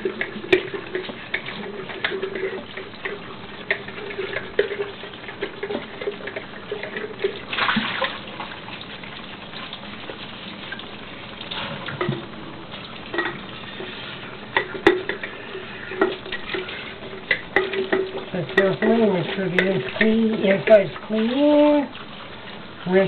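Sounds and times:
dish scrubbing: 0.0 - 23.0
water running: 0.0 - 23.0
water splashing: 0.0 - 23.0
dishes clinking and knocking: 13.1 - 13.5, 14.6 - 20.2.

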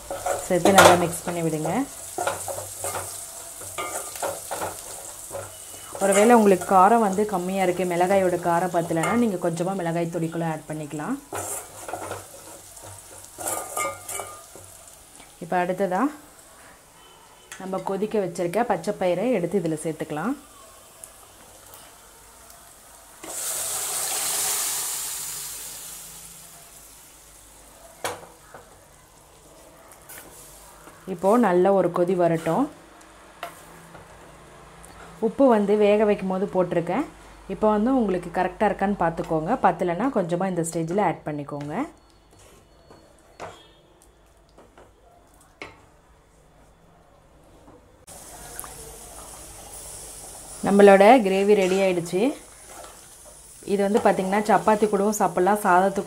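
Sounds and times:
liquid poured into sizzling oil: 23.2 - 27.3, 48.1 - 50.6.

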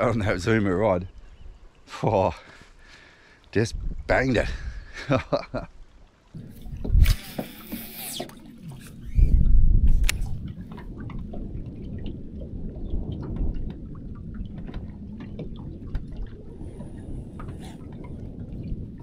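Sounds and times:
water lapping against boat hull: 5.8 - 19.0
low rumble: 6.4 - 7.3.

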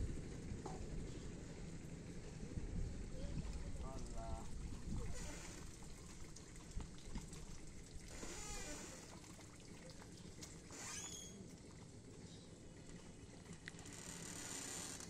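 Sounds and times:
water trickling and dripping: 2.2 - 14.6
high squeak: 10.8 - 11.4.

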